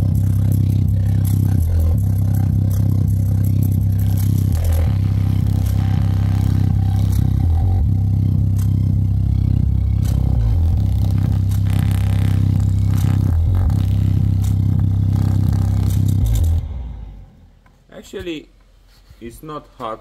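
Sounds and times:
speaker playing deep bass: 0.0s - 17.6s
fingers clicking on speaker cone: 10.0s - 16.6s.

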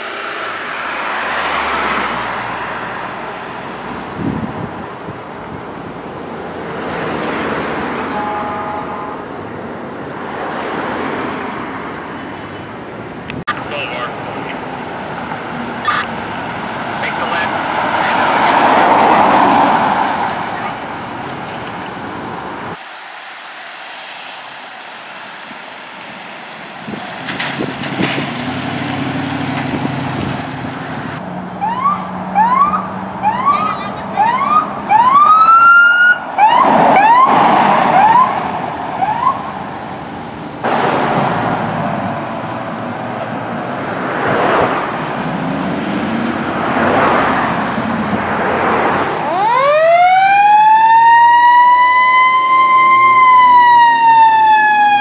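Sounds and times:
traffic and vehicle engines: 0.0s - 55.0s
siren wailing: 31.2s - 40.1s, 49.2s - 55.0s
siren whooping: 31.4s - 39.8s, 49.2s - 55.0s.

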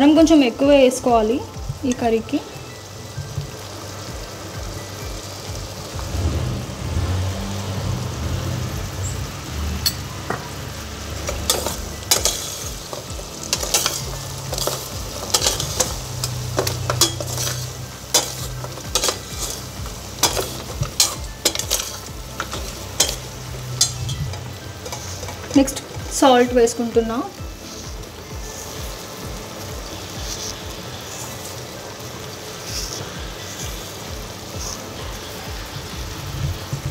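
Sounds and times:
meat frying with a sizzle: 0.0s - 36.9s
spoon clinking and scraping pot: 11.3s - 26.2s.

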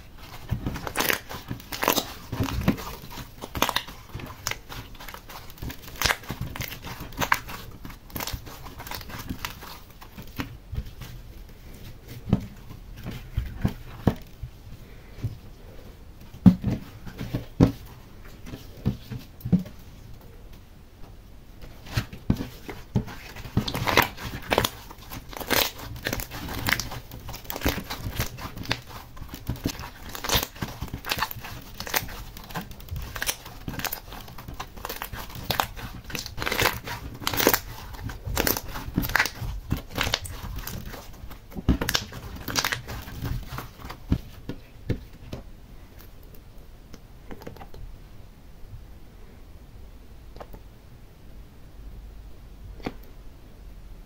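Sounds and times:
slime popping and crackling: 0.1s - 11.1s, 21.8s - 44.4s.

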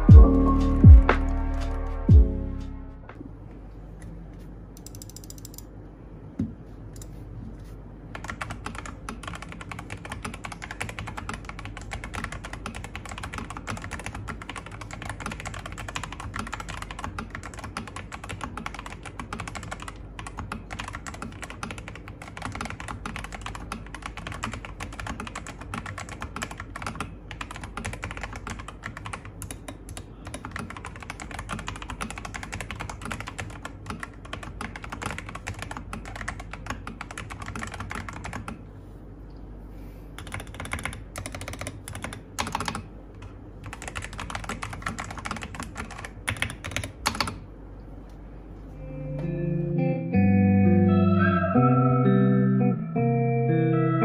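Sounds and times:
mechanical keyboard typing: 8.1s - 38.6s, 40.2s - 42.9s, 43.6s - 47.4s.

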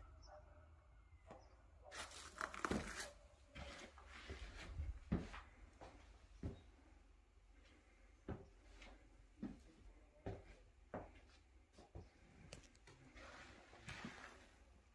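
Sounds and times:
footsteps on wooden floor: 3.6s - 6.8s, 8.3s - 12.2s.

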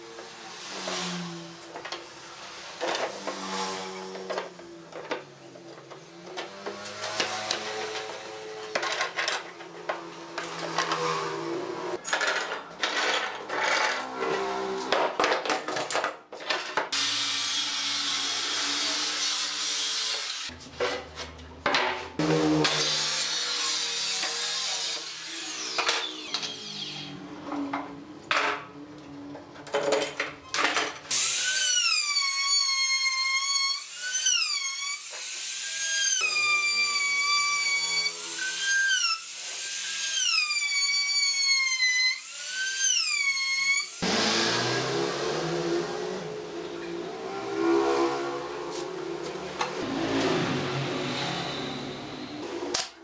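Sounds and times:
circular saw cutting wood: 0.0s - 12.0s, 13.5s - 15.0s, 16.9s - 20.6s, 22.2s - 27.6s, 31.1s - 52.9s
router whining: 22.2s - 27.4s, 31.1s - 52.9s.

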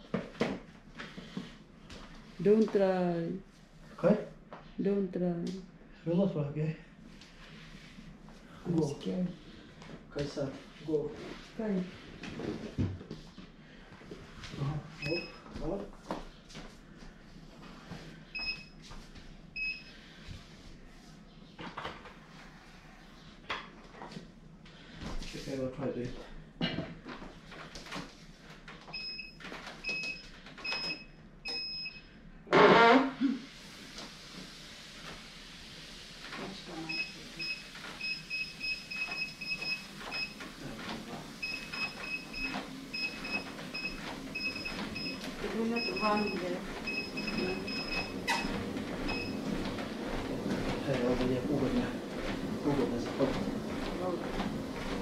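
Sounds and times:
footsteps on treadmill belt: 0.0s - 3.0s, 7.1s - 20.8s, 23.6s - 31.7s, 36.1s - 55.0s
treadmill short high beeps: 15.0s - 15.8s, 18.3s - 18.9s, 19.6s - 20.0s, 28.9s - 32.1s, 36.9s - 40.5s, 41.4s - 55.0s
short electronic beeps: 45.8s - 48.5s.

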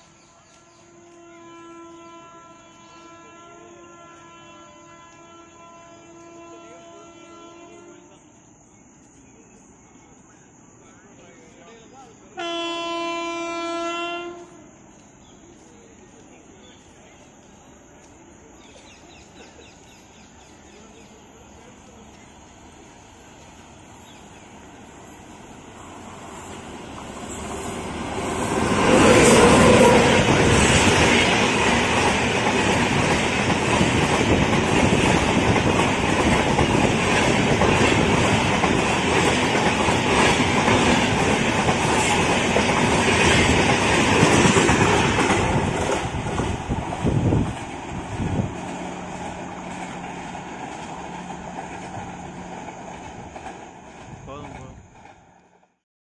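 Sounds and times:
train passing at speed: 0.0s - 55.8s
wheel clatter on rails: 31.4s - 55.5s.

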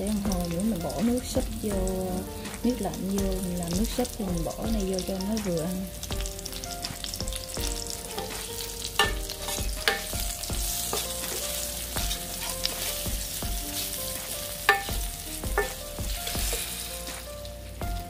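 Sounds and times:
vegetables sizzling in hot oil: 0.0s - 18.0s
utensil knocking against pot: 14.7s - 15.8s.

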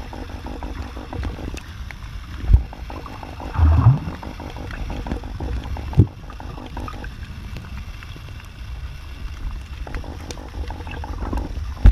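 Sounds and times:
underwater rumble of water: 0.0s - 11.9s
low thump: 3.6s - 4.2s.

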